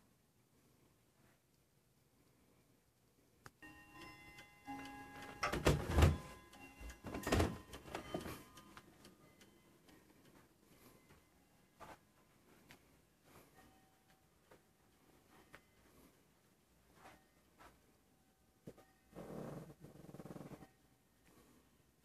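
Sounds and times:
wall clock chiming: 3.6 - 12.3.

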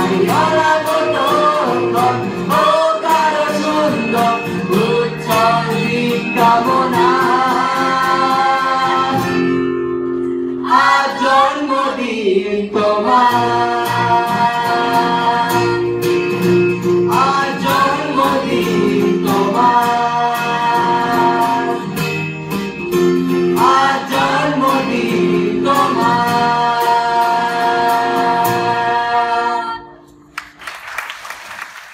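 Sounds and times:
voices singing together: 0.0 - 9.6, 10.6 - 16.1, 17.0 - 22.1, 23.5 - 30.0
strummed acoustic guitar: 0.0 - 11.8, 12.7 - 30.3
people clapping: 30.2 - 31.9.

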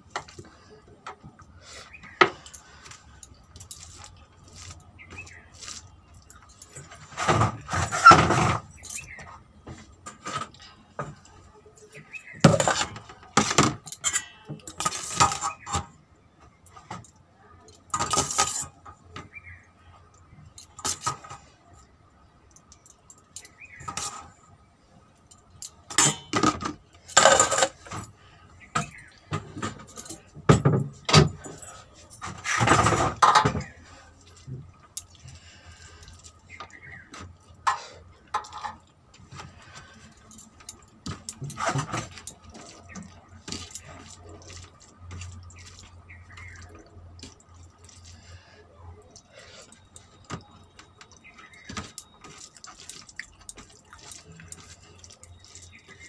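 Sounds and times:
bangles clinking: 2.3 - 7.1, 20.4 - 24.3.

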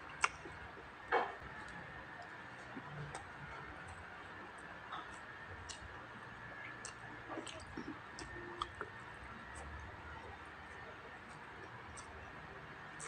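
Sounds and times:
wet chewing and lip smacks: 0.0 - 0.6, 4.9 - 6.0, 6.6 - 9.8, 10.7 - 12.2.

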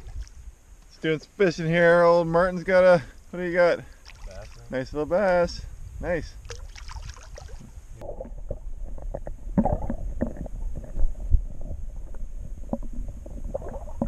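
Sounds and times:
low underwater rumble: 5.8 - 14.0
muffled underwater gurgling: 7.3 - 14.0.

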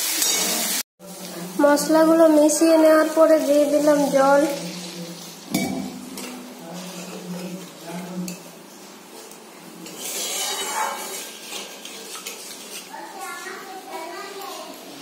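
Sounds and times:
spatula scraping metal pan: 0.0 - 0.8, 5.8 - 8.4, 9.8 - 13.0.

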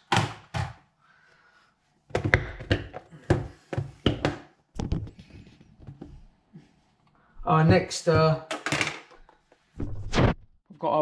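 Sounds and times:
objects knocking and thudding: 0.0 - 0.8, 2.1 - 6.2, 7.6 - 10.5.

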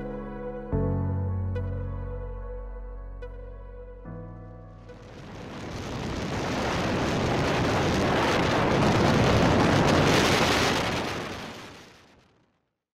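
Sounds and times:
strong wind buffeting microphone: 5.0 - 12.0.

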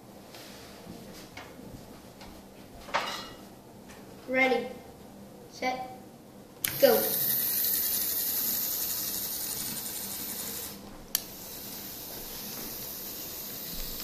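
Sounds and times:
model train motor whirring: 6.6 - 14.0.

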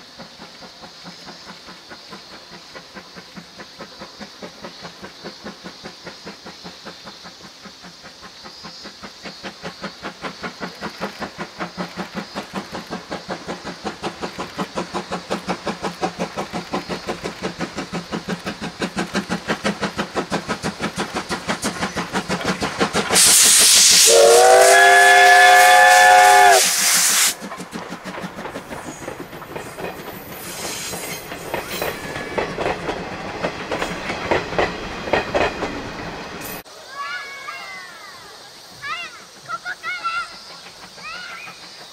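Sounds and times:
steam locomotive exhaust chuffing: 0.0 - 36.7, 38.4 - 41.9
rush of steam: 0.0 - 41.9
steam whistle blast: 23.2 - 27.4
wheels clattering over rail joints: 27.4 - 36.7.

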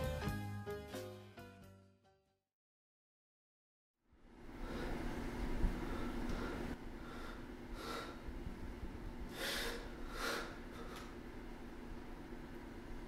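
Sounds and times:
low room hum: 4.0 - 13.0.

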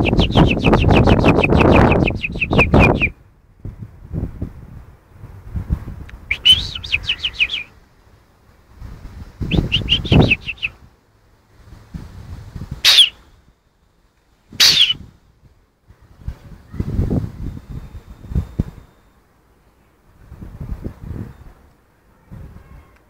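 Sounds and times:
bird chirping: 0.0 - 3.2, 6.3 - 7.8, 9.4 - 10.8, 12.8 - 13.2, 14.6 - 15.0
low rumbling noise: 0.0 - 19.0.

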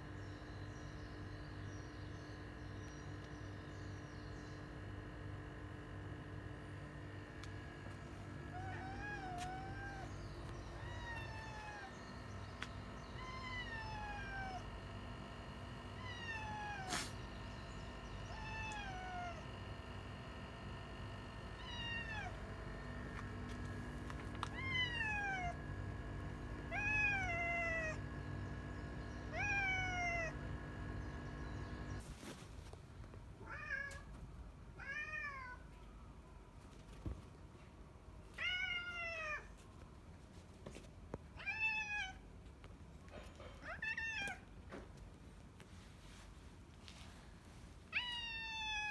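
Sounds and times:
steady hum: 0.0 - 33.0
cat crying: 8.5 - 12.0, 13.1 - 14.8, 16.0 - 17.2, 18.2 - 19.5, 21.6 - 22.4, 24.4 - 25.6, 26.6 - 28.0, 29.2 - 30.4, 38.4 - 39.5, 41.4 - 42.2, 43.6 - 44.4, 47.9 - 48.9.

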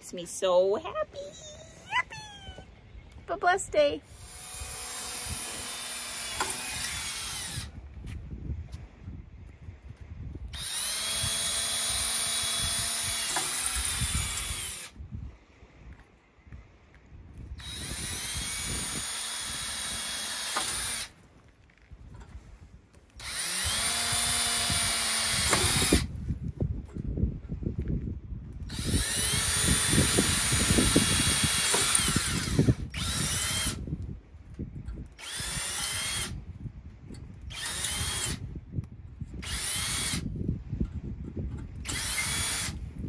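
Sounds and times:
wind rumble on microphone: 0.8 - 43.0
cordless drill boring into concrete: 4.1 - 7.8, 10.5 - 15.0, 17.6 - 21.2, 23.2 - 26.2, 28.7 - 33.8, 35.1 - 36.4, 37.4 - 38.5, 39.4 - 40.3, 41.8 - 42.8
drill bit grinding in concrete: 4.1 - 7.8, 10.5 - 15.0, 17.6 - 21.8, 23.0 - 26.2, 28.7 - 33.8, 35.0 - 36.4, 37.4 - 38.4, 39.3 - 40.3, 41.7 - 42.8.

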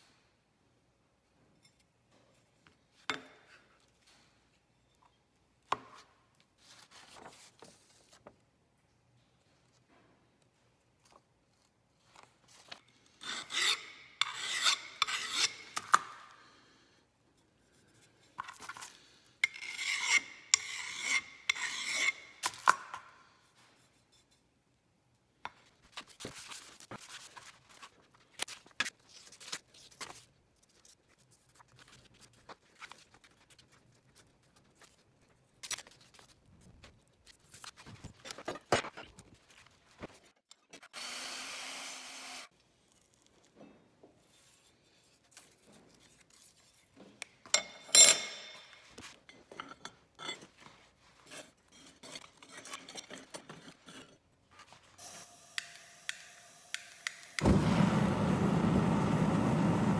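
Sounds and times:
rasping scraping strokes: 13.0 - 16.0, 19.4 - 22.6.

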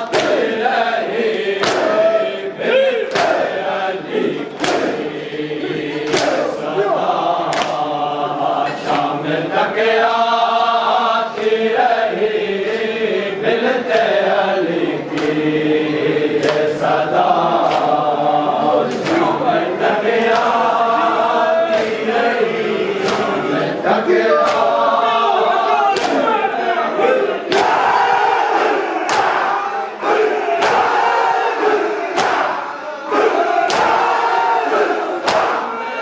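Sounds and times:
hands slapping chests: 0.0 - 0.6, 1.3 - 2.1, 3.0 - 3.6, 4.5 - 5.1, 5.9 - 6.7, 7.4 - 7.9, 8.7 - 9.2, 13.9 - 14.3, 15.1 - 15.4, 16.3 - 16.8, 17.6 - 18.0, 18.8 - 19.4, 20.3 - 20.7, 21.7 - 22.0, 23.0 - 23.4, 24.4 - 24.8, 25.9 - 26.3, 27.5 - 28.0, 28.6 - 29.5, 30.6 - 32.6, 33.3 - 34.2, 35.2 - 35.7
group chanting: 0.0 - 36.0.

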